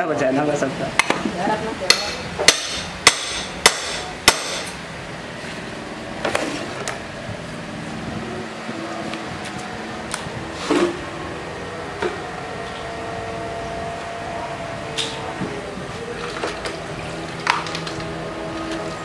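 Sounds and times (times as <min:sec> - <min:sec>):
hammer striking chisel: 0:01.9 - 0:04.8.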